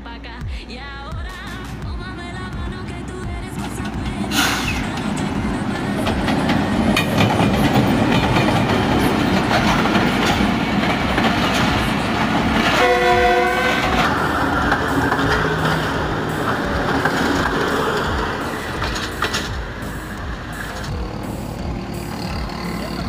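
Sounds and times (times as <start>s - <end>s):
train wheels clattering: 1.1s - 23.0s
train horn: 12.6s - 19.5s.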